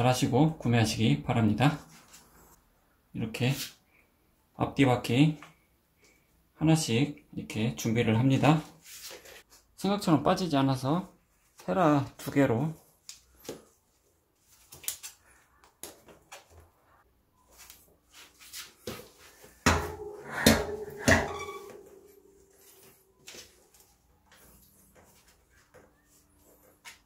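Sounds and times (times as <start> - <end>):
louder knocks: 19.6 - 21.7
short metallic ring: 19.8 - 22.6.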